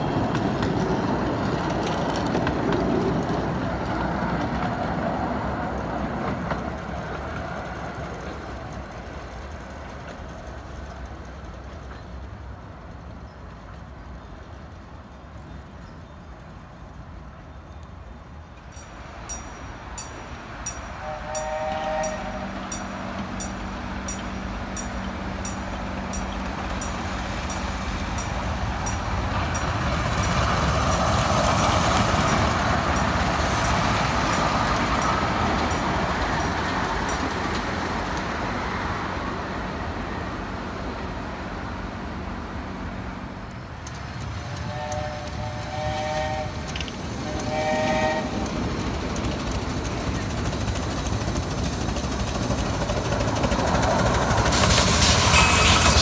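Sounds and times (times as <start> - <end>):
steam train running past: 0.0 - 56.0
steam locomotive whistle: 20.9 - 23.0, 44.6 - 48.5, 54.5 - 56.0.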